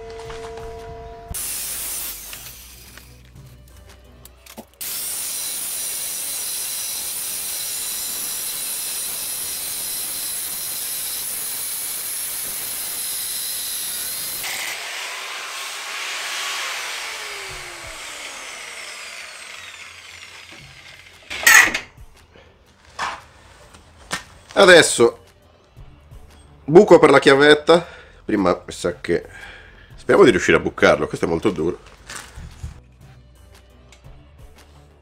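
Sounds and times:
angle grinder cutting steel: 0:01.3 - 0:03.3, 0:04.8 - 0:21.9.

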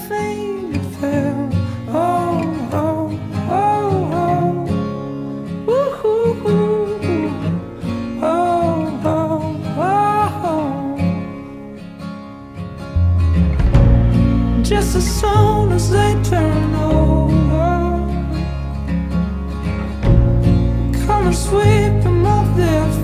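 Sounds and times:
person singing: 0:00.0 - 0:11.5, 0:14.5 - 0:18.7, 0:20.9 - 0:23.0
acoustic guitar: 0:00.0 - 0:23.0.

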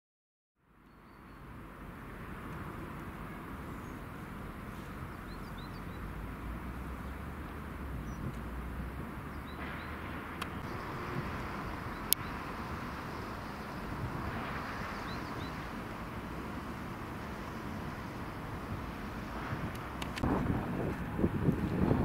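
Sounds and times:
faint bird chirps: 0:00.8 - 0:01.5
distant rumble: 0:01.4 - 0:22.0.

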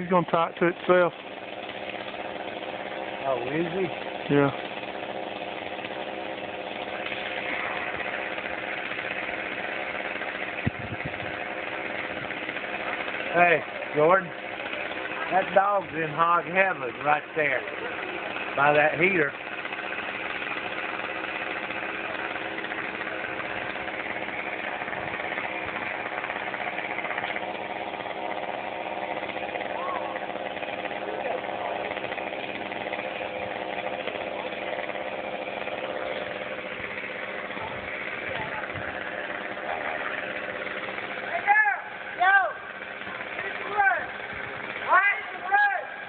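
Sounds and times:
engine idling: 0:00.0 - 0:46.0.

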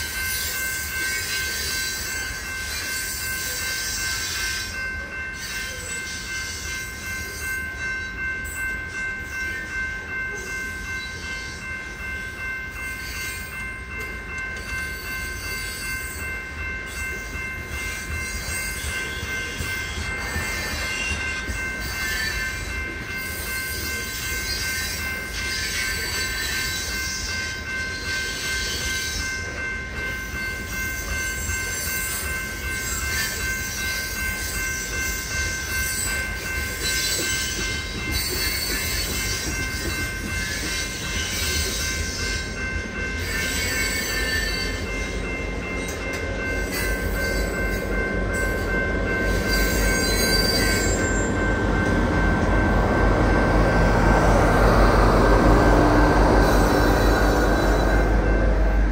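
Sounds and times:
freight train cars rolling: 0:00.0 - 0:58.9
high wheel squeal: 0:36.8 - 0:45.2, 0:46.6 - 0:58.4
diesel locomotive rumble: 0:38.8 - 0:58.9.

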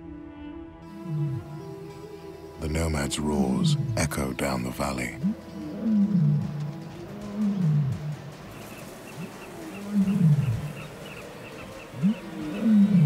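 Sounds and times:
lions roaring: 0:00.9 - 0:01.5, 0:05.2 - 0:13.0.

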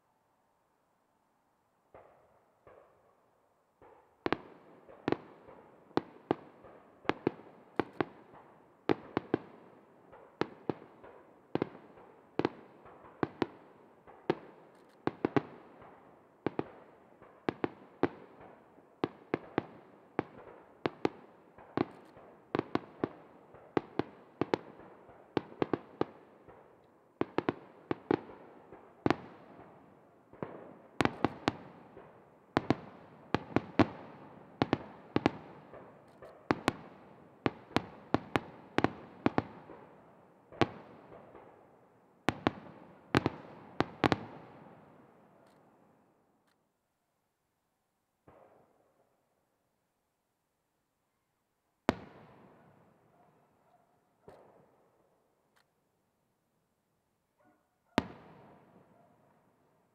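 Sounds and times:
fireworks bursting with echoes: 0:03.8 - 0:45.7, 0:51.9 - 0:53.2, 0:58.0 - 0:59.4.

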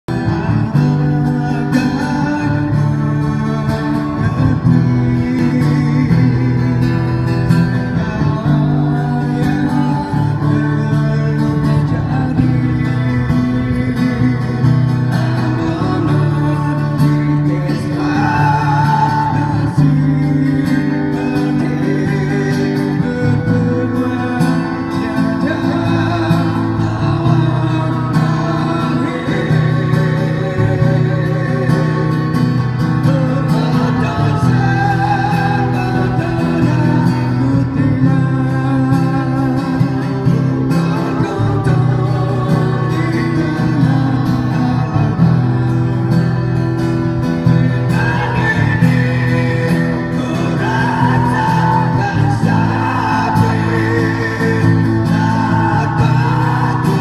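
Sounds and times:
amplified guitar: 0:00.0 - 0:57.0
man singing into microphone: 0:00.1 - 0:57.0.

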